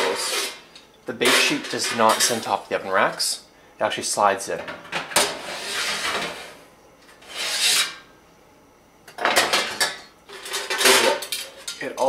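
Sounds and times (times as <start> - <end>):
metal sheet scraping: 0.0 - 2.6, 5.3 - 6.6, 7.2 - 8.0
metal sheet clatter: 10.4 - 11.8.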